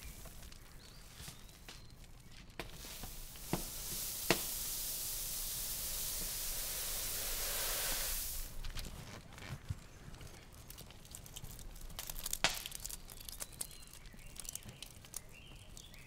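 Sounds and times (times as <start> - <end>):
dry grain pouring into sack: 2.6 - 8.8.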